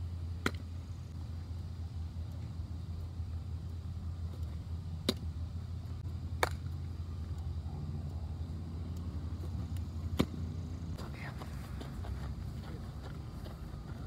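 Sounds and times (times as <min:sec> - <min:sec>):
baseball smacking into glove: 0:06.4 - 0:06.7.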